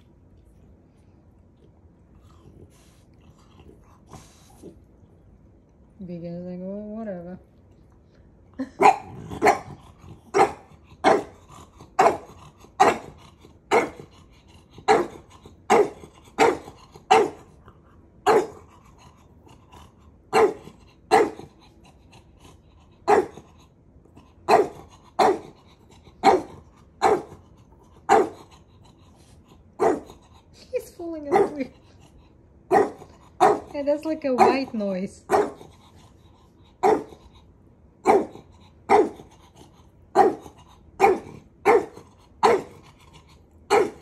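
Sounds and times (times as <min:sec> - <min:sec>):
puppy barking: 0:08.8 - 0:11.4, 0:12.0 - 0:13.1, 0:13.7 - 0:14.0, 0:14.8 - 0:17.4, 0:18.2 - 0:18.6, 0:20.3 - 0:21.4, 0:23.1 - 0:23.4, 0:24.5 - 0:25.5, 0:26.2 - 0:27.4, 0:28.1 - 0:28.4, 0:29.8 - 0:30.1, 0:31.3 - 0:31.7, 0:32.7 - 0:33.8, 0:34.4 - 0:34.7, 0:35.3 - 0:35.6, 0:36.8 - 0:37.2, 0:38.0 - 0:39.2, 0:40.2 - 0:42.8, 0:43.7 - 0:44.0.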